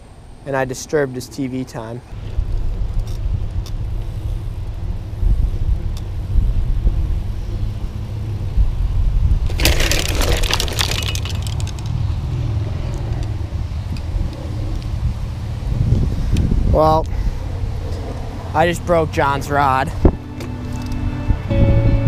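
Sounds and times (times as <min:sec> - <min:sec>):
wind buffeting microphone: 0:02.1 - 0:22.0
bicycle rolling on asphalt: 0:02.2 - 0:16.3.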